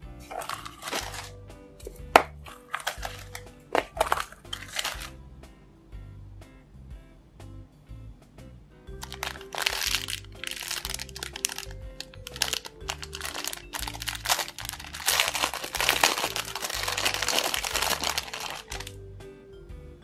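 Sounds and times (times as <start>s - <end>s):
light background music: 0.0s - 20.0s
plastic bag crinkling: 0.3s - 1.3s, 2.5s - 5.1s, 9.0s - 19.0s.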